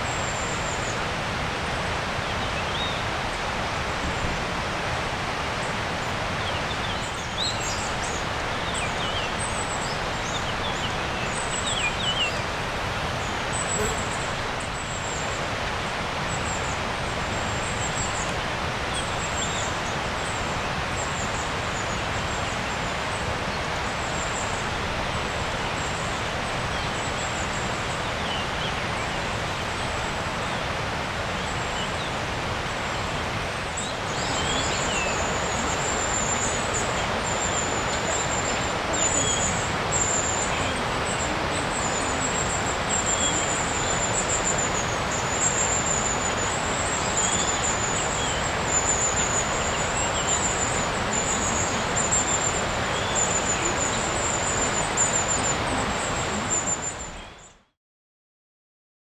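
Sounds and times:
high thin twittering birds: 0:05.2 - 0:57.7
rushing background noise: 0:32.2 - 0:57.0.

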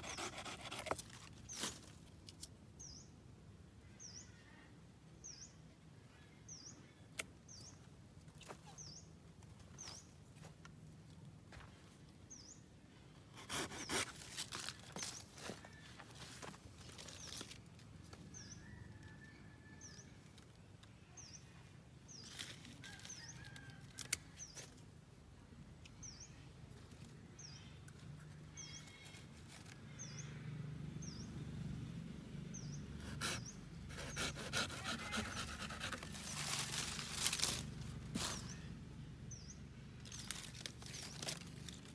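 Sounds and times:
leafy branches rustling: 0:35.7 - 0:38.7, 0:40.0 - 0:41.9.

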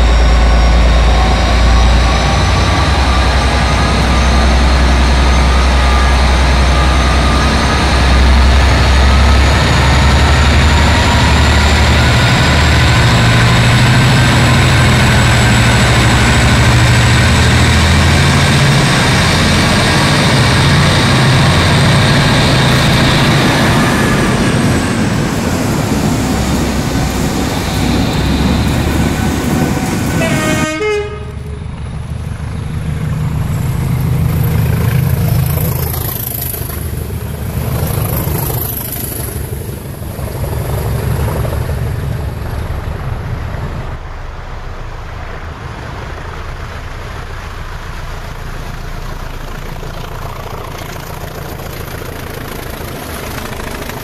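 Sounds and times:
diesel locomotive engines: 0:00.0 - 0:54.0
locomotive horn blast: 0:30.1 - 0:31.6.

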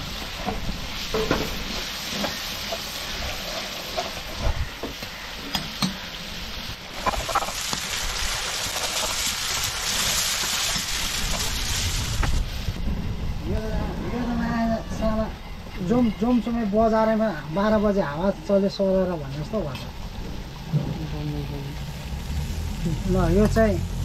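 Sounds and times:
food sizzling in a pan: 0:00.0 - 0:12.8, 0:18.5 - 0:24.0.

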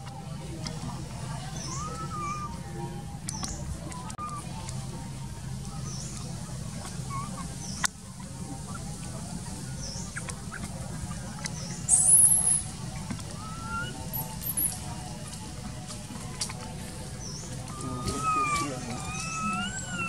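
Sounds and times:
steady low hum: 0:00.0 - 0:20.0
baby monkey squealing: 0:01.5 - 0:02.6, 0:03.4 - 0:04.5, 0:06.9 - 0:07.8, 0:11.5 - 0:14.8, 0:17.2 - 0:20.0
small chirps: 0:09.4 - 0:15.4.

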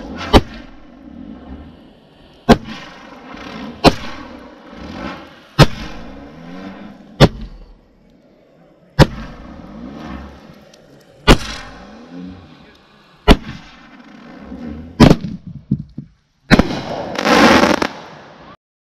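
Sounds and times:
firework launch bangs: 0:00.0 - 0:01.0, 0:02.4 - 0:07.8, 0:09.0 - 0:10.3, 0:11.2 - 0:12.0, 0:13.2 - 0:18.6
loud hissing firework burst: 0:00.0 - 0:07.8, 0:11.2 - 0:15.3, 0:16.5 - 0:18.6
small firework pops: 0:03.8 - 0:04.2, 0:05.0 - 0:06.2, 0:09.0 - 0:09.4, 0:10.5 - 0:11.8, 0:15.0 - 0:18.3.

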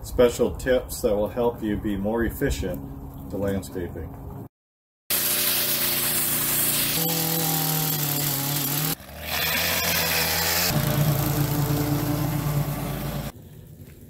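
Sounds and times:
lawn mower pushed through grass: 0:05.1 - 0:13.3
small gasoline engines running: 0:05.1 - 0:13.3.

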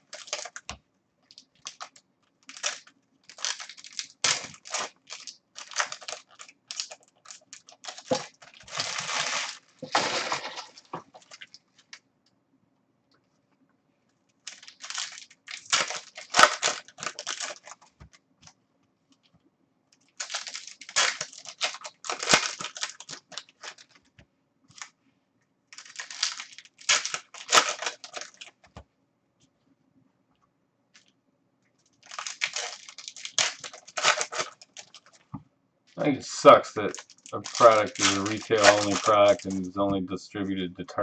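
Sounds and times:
card pack wrappers tearing and crinkling: 0:00.0 - 0:11.6, 0:14.4 - 0:17.9, 0:20.1 - 0:24.0, 0:25.7 - 0:28.7, 0:32.0 - 0:35.2, 0:36.2 - 0:39.9.

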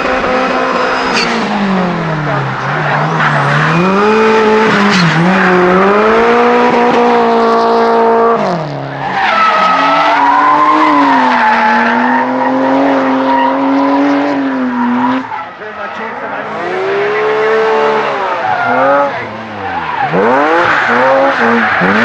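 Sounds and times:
drift car engines at high revs: 0:00.0 - 0:22.0
tyre squeal: 0:00.8 - 0:01.4.

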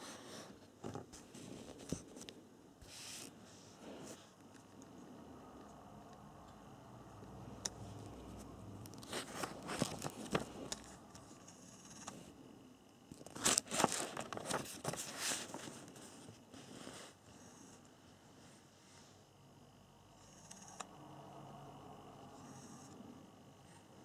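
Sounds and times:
paper pages rustling: 0:08.9 - 0:11.3, 0:13.1 - 0:17.0.

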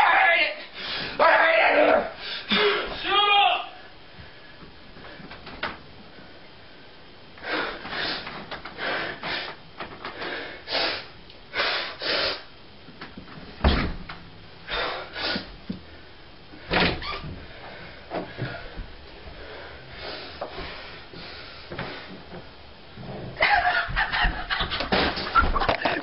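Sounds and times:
heavy thump: 0:13.5 - 0:14.2.

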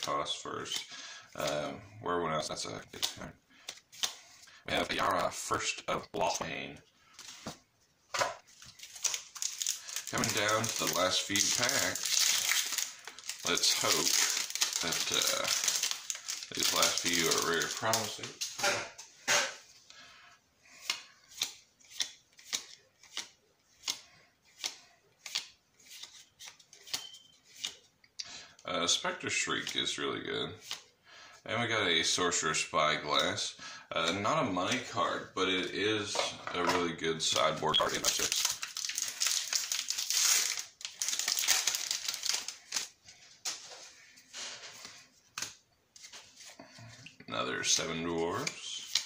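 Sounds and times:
foil wrapper crinkling: 0:08.5 - 0:18.5, 0:37.8 - 0:43.7
cards sliding with papery snap: 0:20.8 - 0:27.8, 0:30.6 - 0:30.9.

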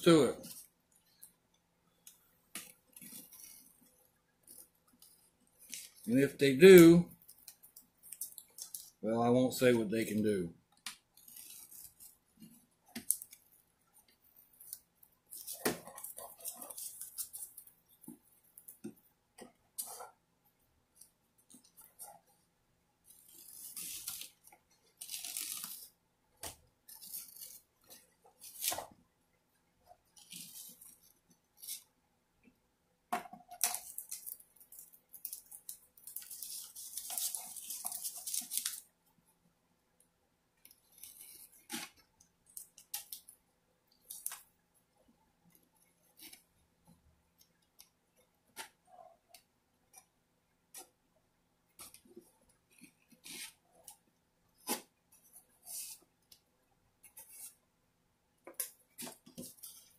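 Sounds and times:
tape rustling: 0:02.0 - 0:06.1, 0:06.7 - 0:09.0, 0:10.8 - 0:19.0, 0:23.0 - 0:29.0, 0:33.4 - 0:38.9.

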